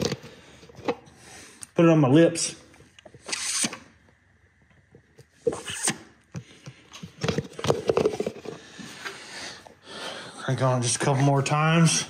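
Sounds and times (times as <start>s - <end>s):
plastic jug knocking and rustling: 7.1s - 8.6s.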